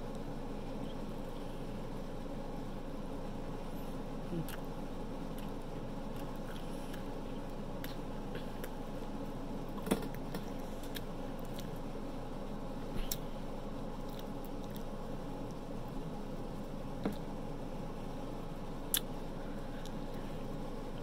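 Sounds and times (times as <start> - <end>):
steady low hum: 0.0 - 21.0
person chewing food: 5.3 - 9.0, 9.7 - 11.8, 13.9 - 15.6
wet mouth clicks: 18.9 - 19.1.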